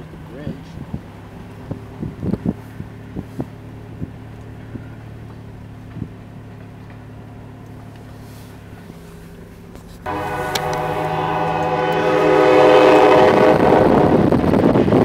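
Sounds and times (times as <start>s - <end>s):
car engine hum: 0.0s - 15.0s
tyre noise on snow: 7.8s - 13.3s.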